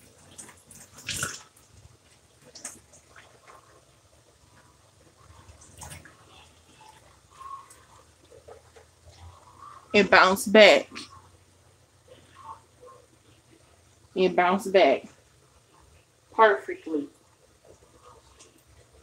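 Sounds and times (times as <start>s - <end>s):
faucet water splashing in sink: 0.0s - 8.8s.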